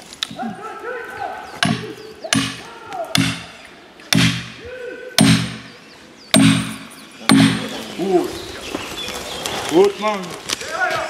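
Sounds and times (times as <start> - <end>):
heavy ringing knocks: 3.2 - 3.5, 4.1 - 4.6, 5.2 - 5.7, 6.4 - 7.7.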